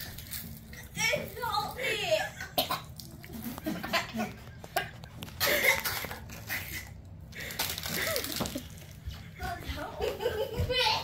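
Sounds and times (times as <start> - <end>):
plastic wrapper rustling: 0.0 - 1.8, 4.9 - 9.1
girl coughing: 2.2 - 3.0, 5.4 - 6.2
girl laughing: 3.2 - 6.9, 7.8 - 8.8, 9.7 - 11.0.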